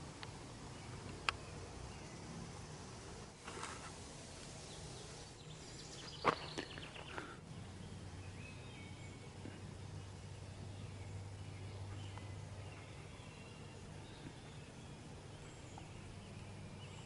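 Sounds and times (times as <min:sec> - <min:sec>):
background hiss: 0:00.0 - 0:17.0
short rustle: 0:03.4 - 0:04.7.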